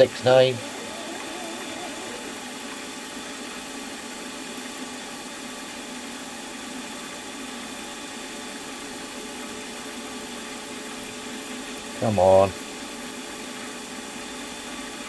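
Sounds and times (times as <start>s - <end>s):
milling machine running: 0.0s - 10.8s.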